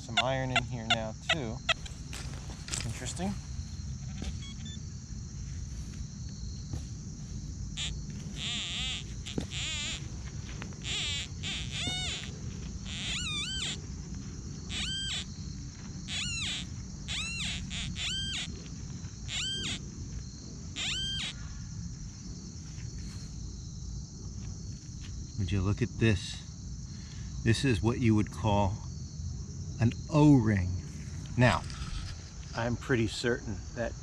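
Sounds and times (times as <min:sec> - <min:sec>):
warbling electronic tones: 0:10.8 - 0:13.8, 0:14.7 - 0:15.3, 0:16.1 - 0:18.5, 0:19.3 - 0:19.8, 0:20.8 - 0:21.3.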